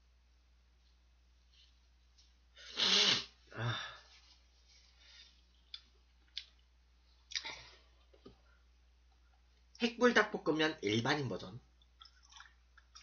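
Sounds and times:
man blowing his nose: 2.6s - 3.8s.

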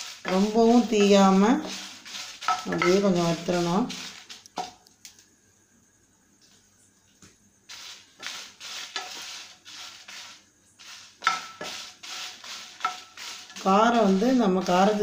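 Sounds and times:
spatula scraping chillies in pan: 0.0s - 4.7s, 7.7s - 15.0s.

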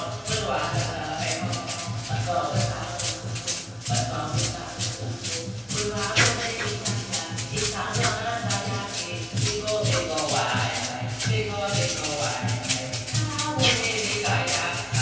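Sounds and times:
rattle shaken rhythmically: 0.0s - 15.0s
person singing: 6.2s - 6.9s, 13.6s - 14.6s.

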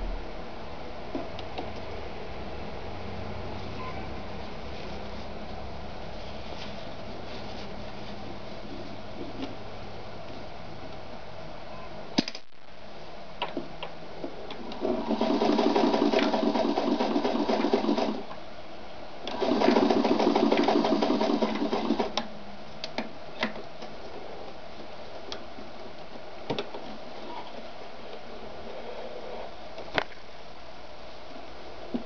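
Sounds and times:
sewing machine stitching: 14.6s - 18.3s, 19.3s - 22.2s.

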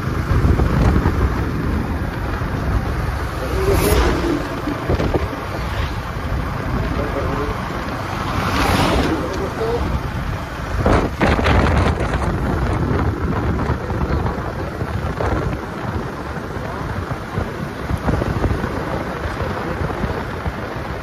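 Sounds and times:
wind buffeting the microphone: 0.0s - 21.0s.

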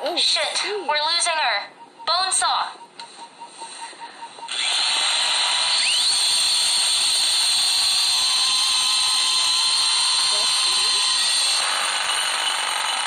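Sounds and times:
bone saw high-pitched whine: 4.5s - 13.0s.

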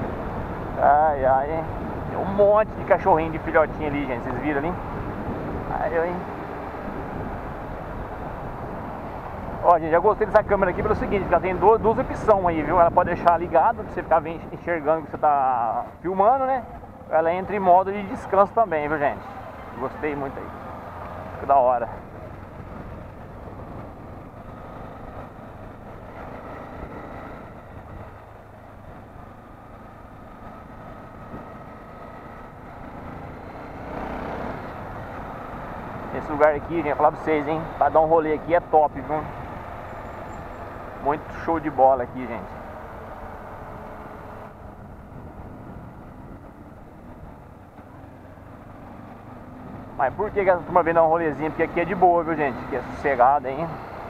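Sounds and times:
wind noise: 0.0s - 15.2s, 21.2s - 29.6s, 30.2s - 31.7s, 44.2s - 47.5s
motorcycle engine cruising: 0.0s - 54.0s
road noise: 0.0s - 54.0s.

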